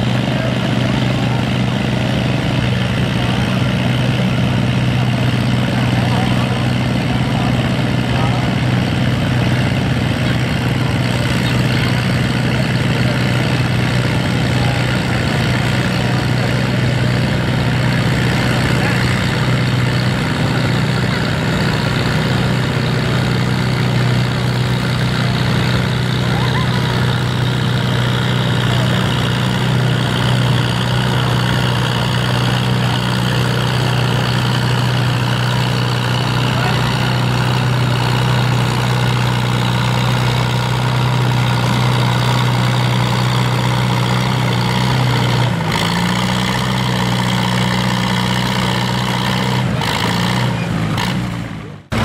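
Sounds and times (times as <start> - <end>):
tractor engine under load: 0.0 - 52.0.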